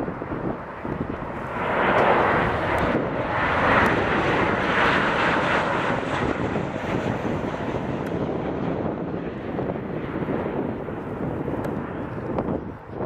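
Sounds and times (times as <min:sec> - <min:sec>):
jet engines of passing airliner: 0:00.0 - 0:13.0.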